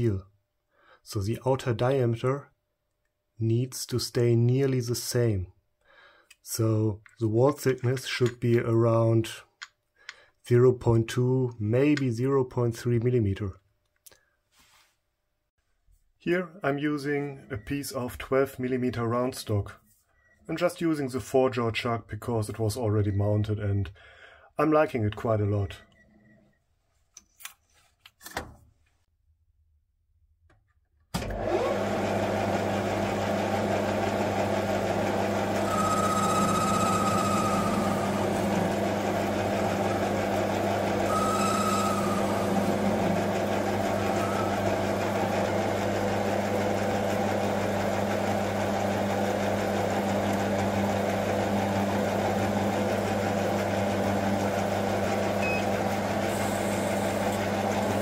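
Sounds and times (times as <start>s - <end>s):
metal lathe humming: 31.4s - 58.0s
cutting tool whine on metal: 34.8s - 46.5s.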